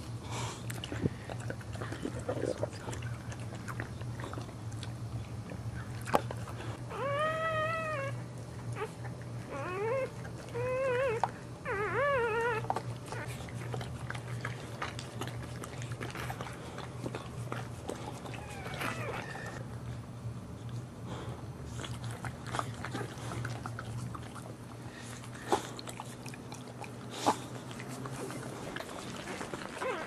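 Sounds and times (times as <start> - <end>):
dog whining: 6.7 - 13.9, 17.9 - 19.6, 28.1 - 30.0.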